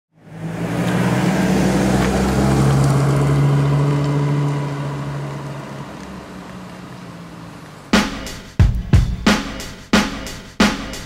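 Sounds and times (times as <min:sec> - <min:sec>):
pickup truck engine driving away: 0:00.2 - 0:08.0.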